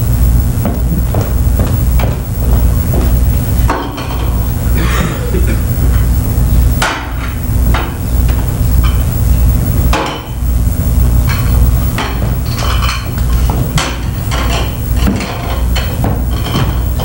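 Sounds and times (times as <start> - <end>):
pulsing low hum: 0.0 - 17.0
loud knocks: 0.3 - 4.6.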